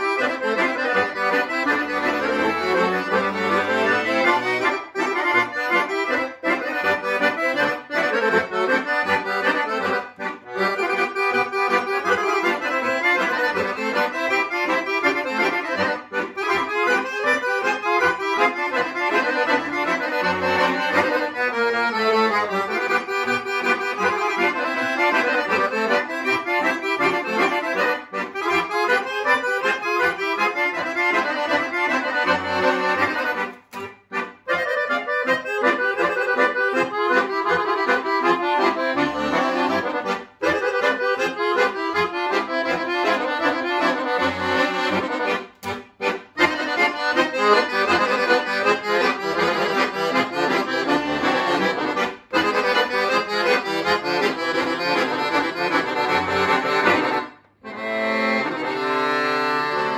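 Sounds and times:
accordion duet: 0:00.0 - 0:59.9.

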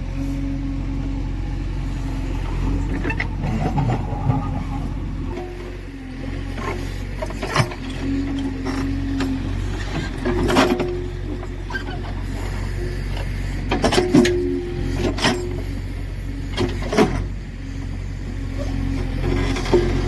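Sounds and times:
diesel engine running: 0:00.0 - 0:20.0
hydraulic whine: 0:00.0 - 0:20.0
metal bucket scraping stones: 0:03.0 - 0:04.9.

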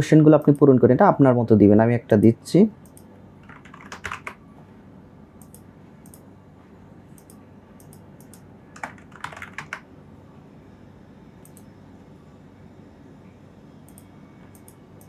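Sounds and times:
computer keyboard typing: 0:02.9 - 0:04.4, 0:07.2 - 0:09.9.

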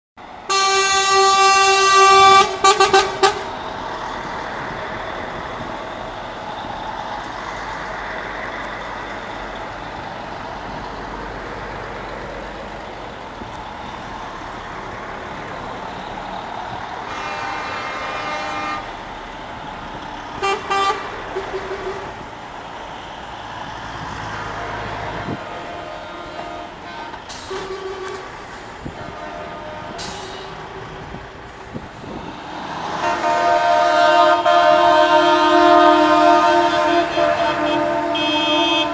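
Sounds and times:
diesel engines running: 0:00.2 - 0:38.9
truck horns blasting: 0:00.4 - 0:06.0, 0:16.0 - 0:19.3, 0:20.3 - 0:22.3, 0:24.2 - 0:38.9.

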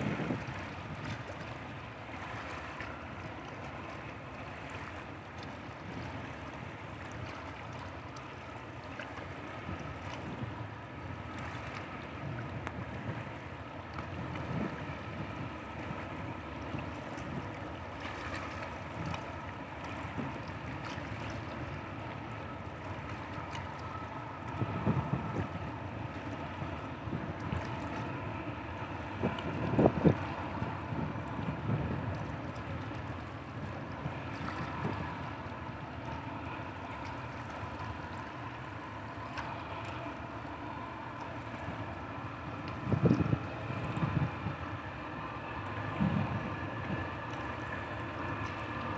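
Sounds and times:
wind buffeting microphone: 0:00.0 - 0:02.5, 0:09.4 - 0:17.6, 0:22.7 - 0:38.3, 0:41.0 - 0:48.9
ship engine droning: 0:00.0 - 0:48.9.

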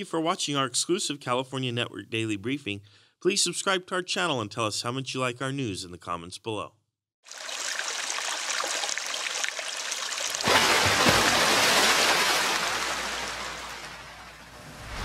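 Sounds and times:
water trickling and splashing: 0:07.3 - 0:14.6.

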